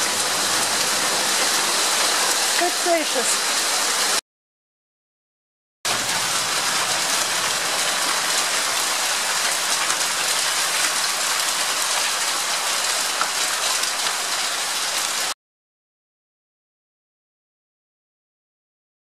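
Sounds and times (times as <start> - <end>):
hail striking hard surfaces: 0.0 - 4.2, 5.9 - 15.3.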